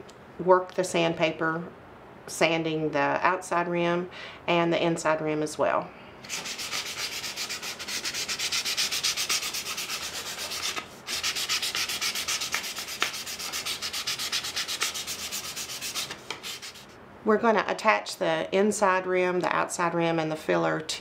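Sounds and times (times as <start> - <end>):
sandpaper rubbing basket rim: 6.3 - 16.9.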